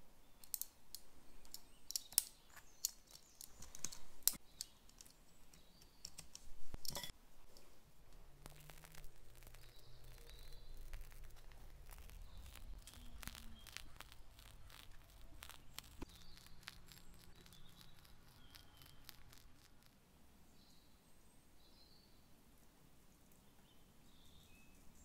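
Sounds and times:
plastic piping bag crinkling: 8.2s - 20.0s.

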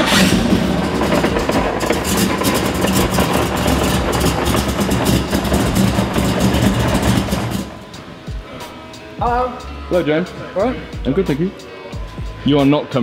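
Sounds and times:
car engine idling loudly: 0.0s - 8.2s.

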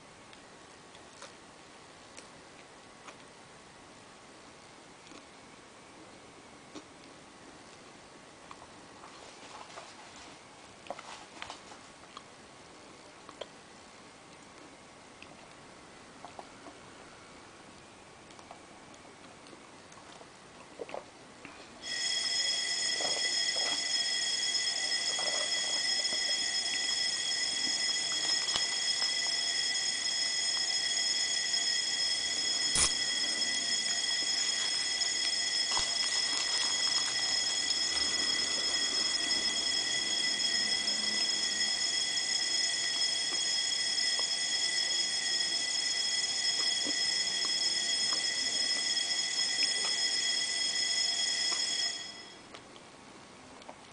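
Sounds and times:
faint eating sounds: 0.3s - 3.6s, 4.4s - 43.4s, 52.4s - 53.9s
high-pitched whine: 21.8s - 52.5s.

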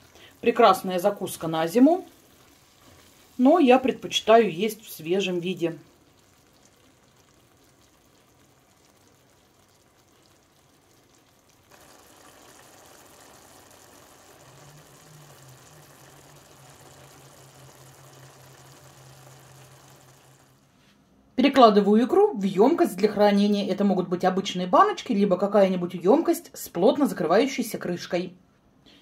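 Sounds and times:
stew bubbling in a pan: 0.0s - 20.8s.

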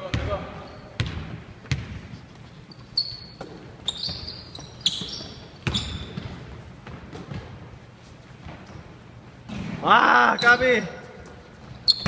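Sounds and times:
sneaker squeaks: 0.0s - 12.0s
basketball bouncing on hardwood floor: 1.0s - 2.1s, 3.4s - 7.6s.

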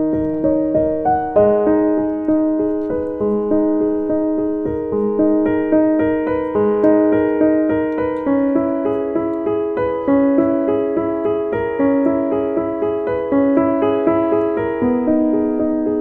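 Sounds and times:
flowing piano music: 0.0s - 16.0s.

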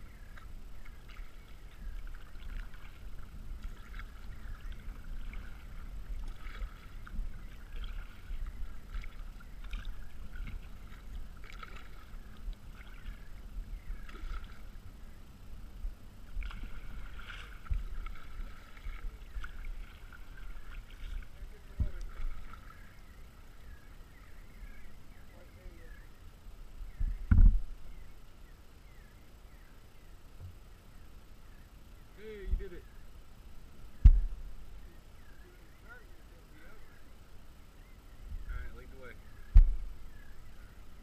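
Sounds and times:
steady low rumble: 0.0s - 41.0s
paddle splashing in water: 0.1s - 14.8s, 16.2s - 23.1s.

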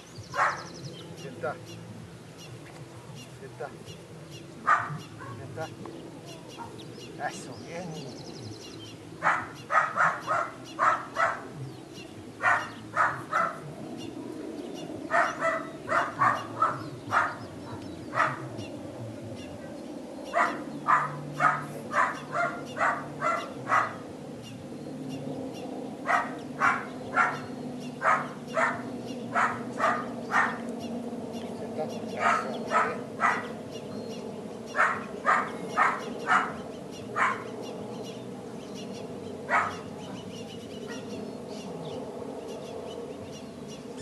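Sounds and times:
dog barking: 0.3s - 0.7s, 4.6s - 5.4s, 6.5s - 6.8s, 9.2s - 11.6s, 12.4s - 13.7s, 15.1s - 18.5s, 20.3s - 24.0s, 26.0s - 30.6s, 32.2s - 33.6s, 34.7s - 36.6s, 37.2s - 37.5s, 39.5s - 39.9s, 40.9s - 41.1s.

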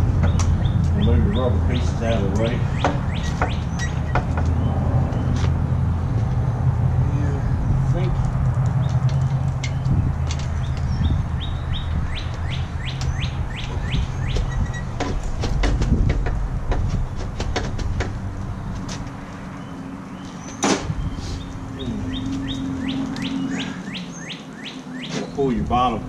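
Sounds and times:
low hum: 2.6s - 14.2s.

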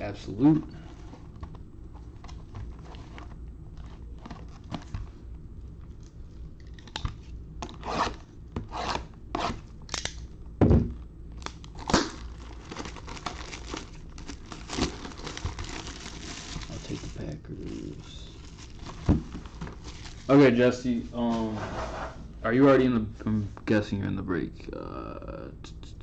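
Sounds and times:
plastic wrap tearing and crinkling: 11.4s - 20.4s.

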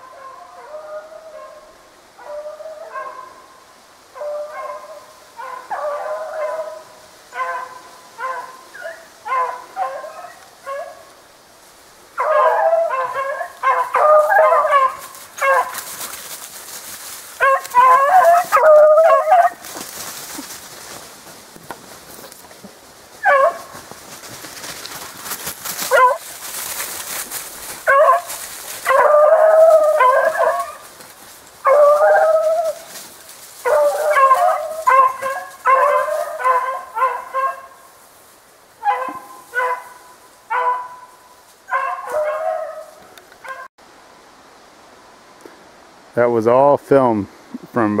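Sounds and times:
rustling hiss: 1.1s - 48.0s
dogs baying: 4.2s - 11.1s, 12.2s - 16.2s, 17.4s - 19.7s, 23.2s - 23.8s, 25.8s - 26.2s, 27.7s - 30.9s, 31.6s - 33.0s, 33.6s - 37.8s, 38.8s - 41.1s, 41.7s - 43.7s.

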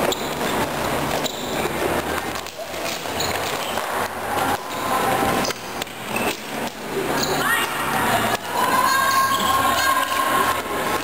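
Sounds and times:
players shouting: 7.2s - 11.0s.

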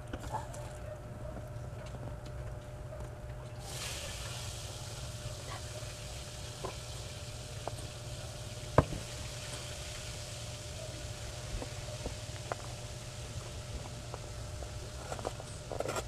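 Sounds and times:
steady hiss: 3.6s - 15.9s.

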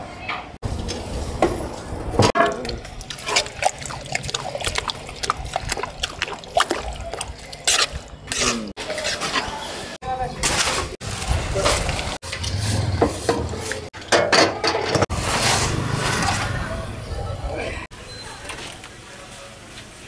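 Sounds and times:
curry squelching and sloshing: 2.2s - 9.5s, 10.6s - 14.0s.

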